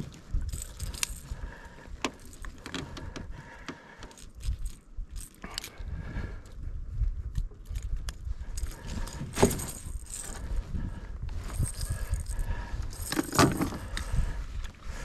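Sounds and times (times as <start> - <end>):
pliers and hooks clinking: 0.0 - 1.4, 4.0 - 5.8, 7.3 - 10.4, 11.5 - 14.0.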